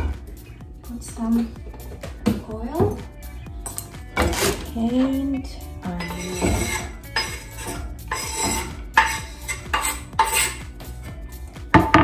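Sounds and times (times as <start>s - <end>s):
knife scraping and clicking on pan: 6.0s - 10.6s
knife scraping cutting board: 6.0s - 10.6s.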